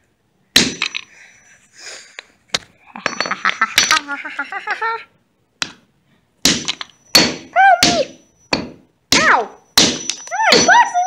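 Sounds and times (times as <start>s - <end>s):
hammer striking wood: 0.6s - 1.0s, 6.4s - 10.7s.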